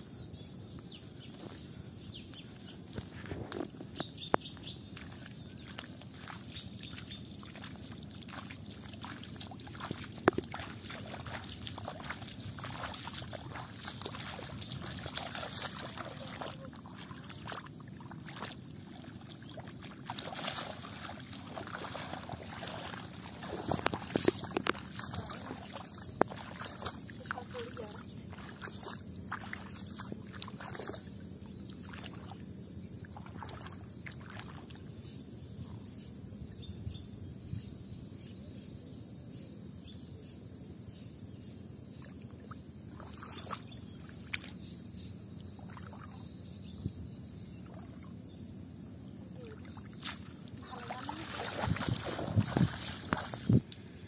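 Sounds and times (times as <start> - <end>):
high insect buzz: 0.0 - 54.0
wading splashes in water: 4.6 - 35.5, 41.9 - 48.4, 49.0 - 54.0.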